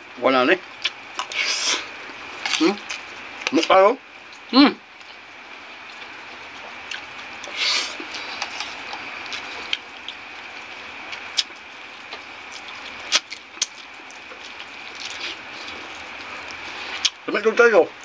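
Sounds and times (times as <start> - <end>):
hissing slurp: 1.2 - 1.9, 7.4 - 8.8
mouth clicks and smacks chewing: 11.1 - 17.2.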